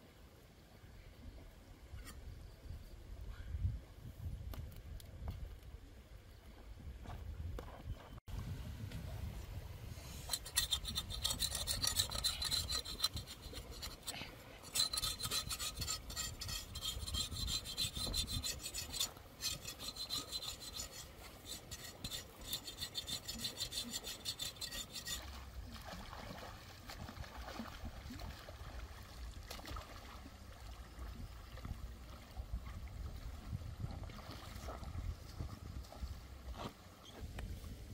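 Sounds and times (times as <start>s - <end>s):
knife blade scraping on rocks: 10.2s - 25.4s
river water splashing: 24.2s - 37.0s.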